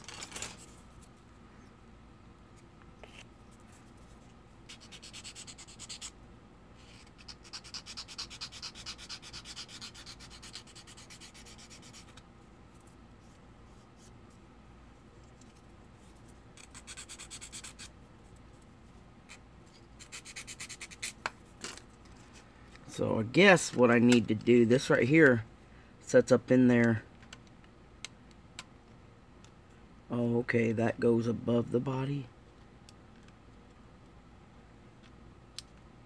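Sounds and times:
sanding stick rasping plastic: 4.7 - 6.1, 7.1 - 12.2, 16.6 - 17.9.

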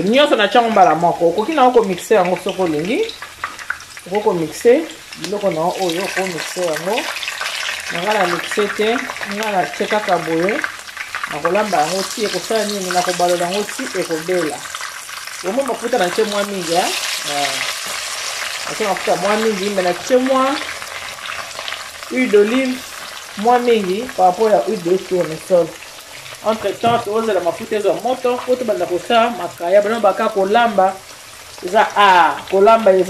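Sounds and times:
fish sizzling in oil: 0.0 - 33.0
person talking: 7.9 - 10.6, 15.4 - 17.7, 18.7 - 20.7, 22.1 - 22.8, 23.4 - 25.8, 26.4 - 31.0, 31.6 - 33.0.

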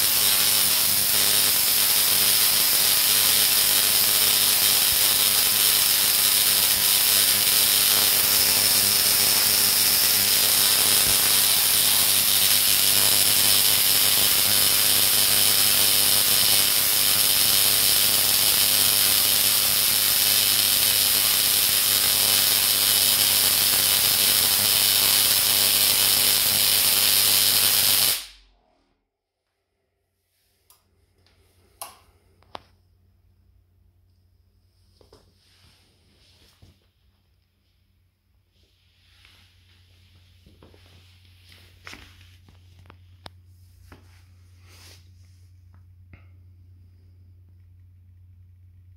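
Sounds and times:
tesla coil sparks buzzing: 0.0 - 28.6.

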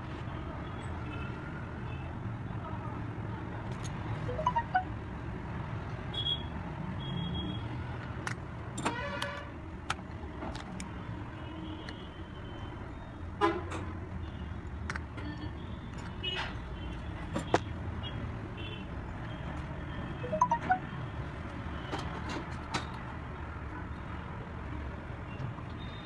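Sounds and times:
small tools clicking and tapping: 8.0 - 10.9, 14.6 - 16.6.

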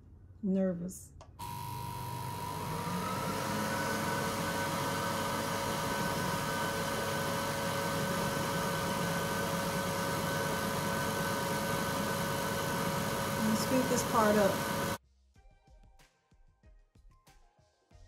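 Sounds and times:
laser engraver hum and whine: 1.4 - 3.8.

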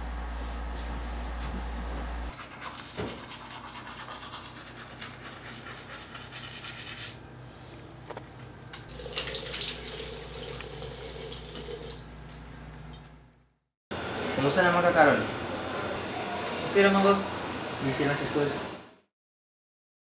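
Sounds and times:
toothbrush scrubbing teeth: 2.3 - 7.2
running water and splashing: 8.9 - 12.1.

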